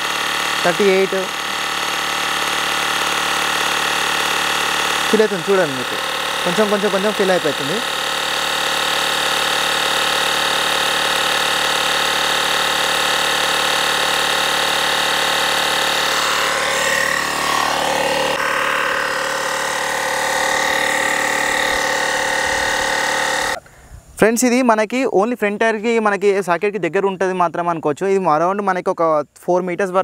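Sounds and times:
tyre inflator compressor humming: 0.0s - 23.6s.

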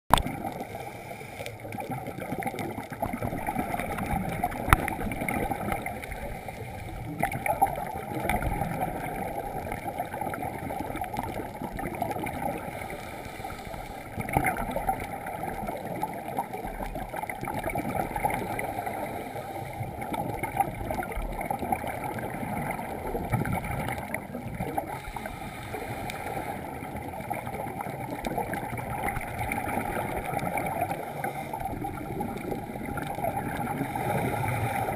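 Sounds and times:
muffled water noise: 0.1s - 34.9s
scuba regulator breathing underwater: 0.4s - 2.6s, 3.4s - 7.6s, 12.2s - 14.3s, 18.2s - 20.0s, 24.7s - 27.6s, 28.4s - 34.9s
gurgling exhaust bubbles: 1.7s - 6.4s, 7.0s - 13.0s, 14.0s - 19.0s, 19.8s - 25.4s, 26.5s - 34.9s.

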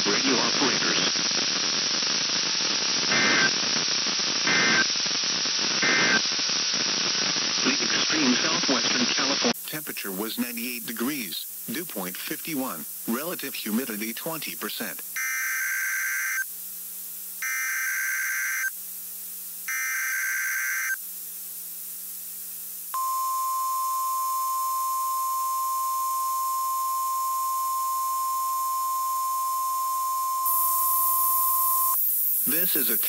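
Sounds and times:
digital data bursts: 3.0s - 3.7s, 4.4s - 5.0s, 5.7s - 6.4s, 19.7s - 21.0s, 23.0s - 33.0s
steady warning alarm tone: 15.2s - 16.4s, 17.4s - 18.7s, 19.7s - 21.0s, 23.0s - 33.0s.

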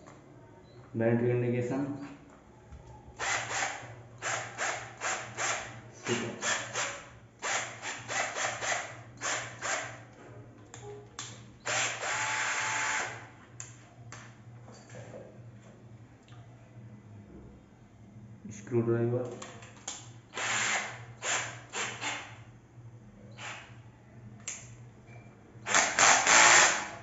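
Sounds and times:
cordless drill motor whirring: 3.2s - 10.0s, 11.6s - 13.2s, 20.3s - 22.3s, 23.4s - 23.7s, 25.7s - 27.0s.

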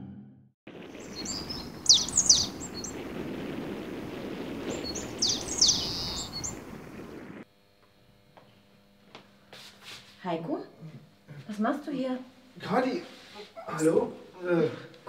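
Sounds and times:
small birds chirping: 0.9s - 7.3s.

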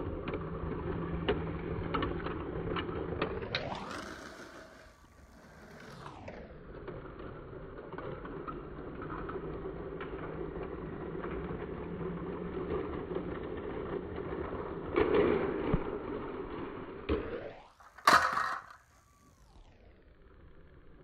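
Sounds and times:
toy train motor whirring: 3.6s - 6.1s.

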